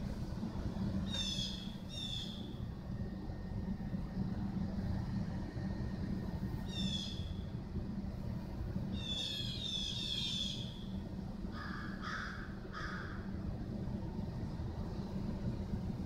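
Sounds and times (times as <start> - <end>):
city traffic rumble: 0.0 - 16.0
crow cawing: 11.6 - 13.2.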